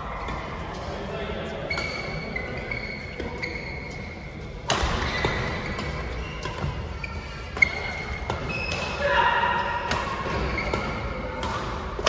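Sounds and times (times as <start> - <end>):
shoes squeaking on court floor: 0.0 - 12.0
rackets striking shuttlecock: 4.6 - 12.0.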